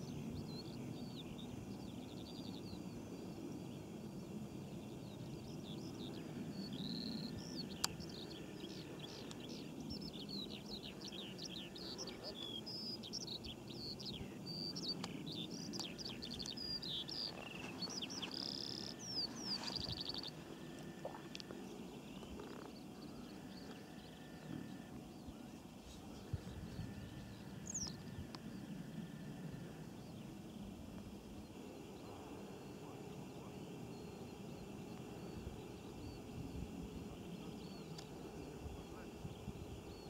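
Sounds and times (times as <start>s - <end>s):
low rumble of background noise: 0.0s - 40.0s
small bird chirping and trilling: 5.5s - 20.4s.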